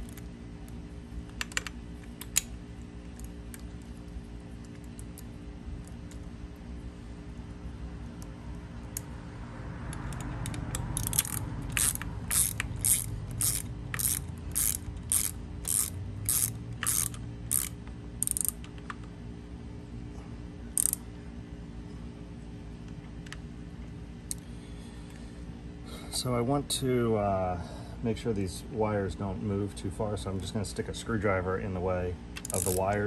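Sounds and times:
socket ratchet clicking: 0:01.2 - 0:02.5, 0:09.9 - 0:19.1, 0:20.7 - 0:21.0, 0:32.4 - 0:33.0.

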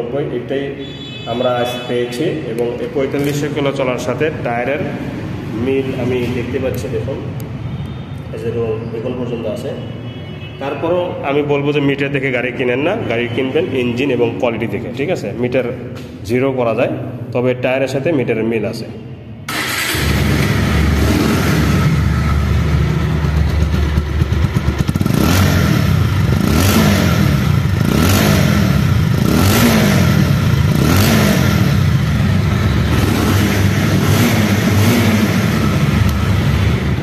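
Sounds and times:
motorcycle engine revving: 0:19.5 - 0:37.0.

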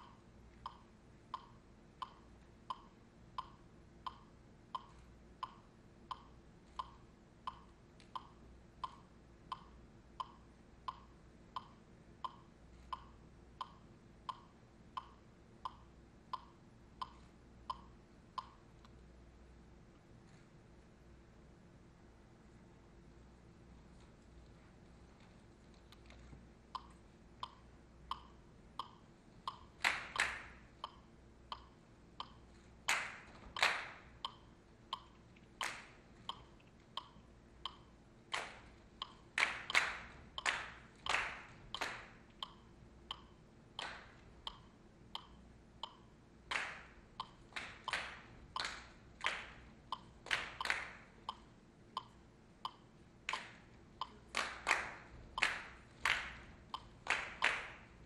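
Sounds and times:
ticking beat of short pings: 0:00.0 - 0:18.7, 0:26.7 - 0:33.0, 0:33.8 - 0:46.2, 0:47.1 - 0:54.4
sharp hand claps: 0:29.8 - 0:30.6, 0:32.9 - 0:34.0, 0:38.3 - 0:38.6, 0:39.4 - 0:42.1, 0:46.5 - 0:46.9, 0:47.6 - 0:49.6, 0:50.2 - 0:51.0, 0:54.3 - 0:56.4, 0:57.0 - 0:57.9.

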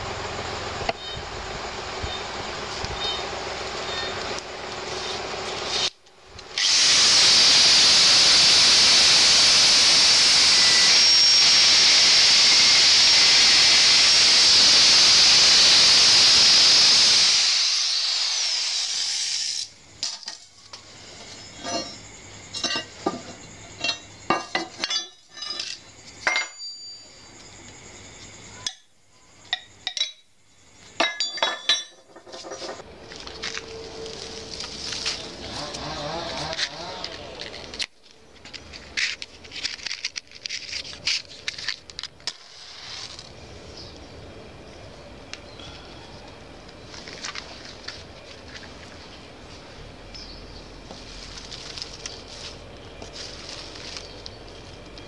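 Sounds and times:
angle grinder cutting steel: 0:06.6 - 0:19.7, 0:35.4 - 0:37.8
metal pieces clinking: 0:21.6 - 0:26.8, 0:31.0 - 0:32.8.

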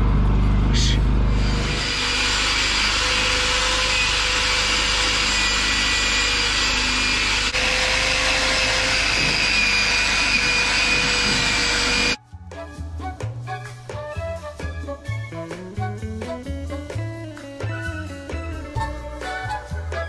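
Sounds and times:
power tool grinding steel: 0:01.3 - 0:12.2.

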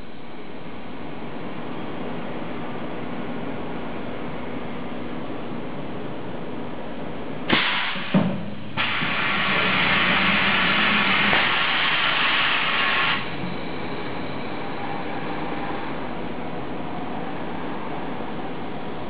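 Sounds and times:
loud air hiss: 0:07.5 - 0:13.4
welding machine whirring: 0:08.8 - 0:14.3.

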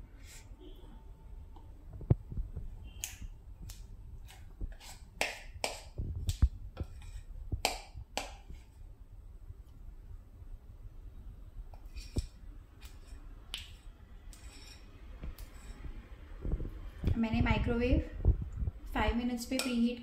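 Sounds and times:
spatula scraping batter in bowl: 0:04.2 - 0:06.0, 0:06.8 - 0:07.4, 0:11.8 - 0:13.2, 0:14.3 - 0:15.9.

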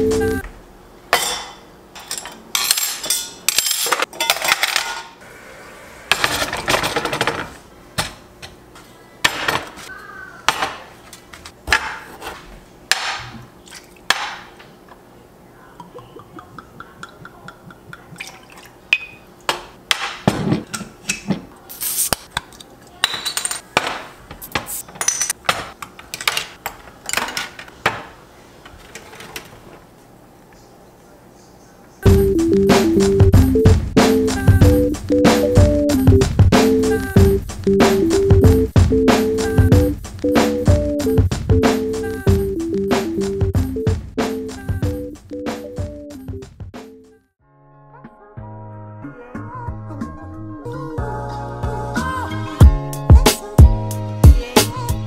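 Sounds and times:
mugs and bottles clinking: 0:15.8 - 0:21.3.

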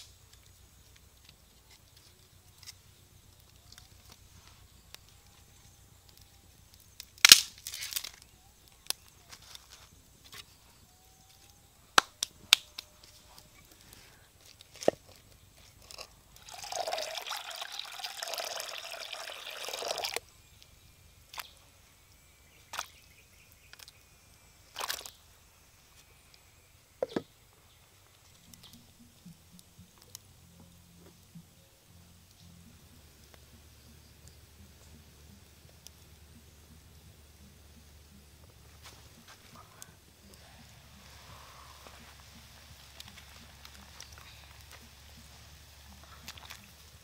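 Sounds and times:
water splashing into a pot: 0:16.4 - 0:20.2.

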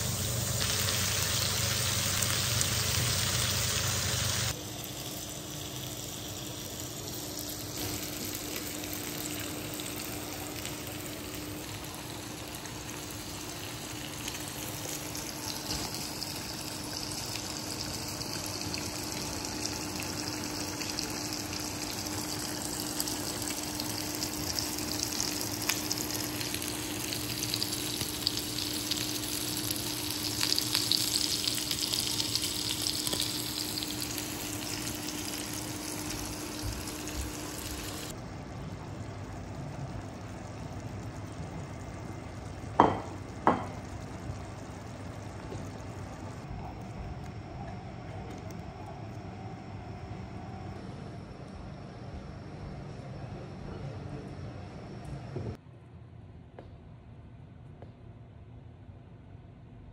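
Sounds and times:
pork sizzling on grill pan: 0:00.0 - 0:38.2, 0:41.2 - 0:46.1
faint steady hum: 0:00.0 - 0:59.9.

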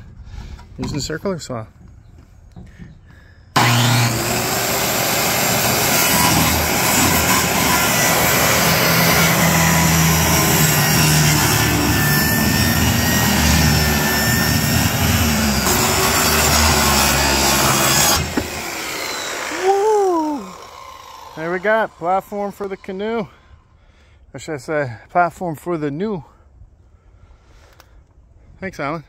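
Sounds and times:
circular saw cutting plywood: 0:03.6 - 0:23.6.

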